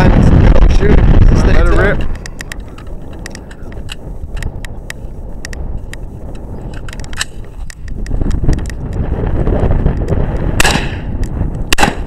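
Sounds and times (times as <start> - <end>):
wind rumbling on microphone: 0.0 - 12.0
rifle metallic clicks and rattles: 2.0 - 9.0.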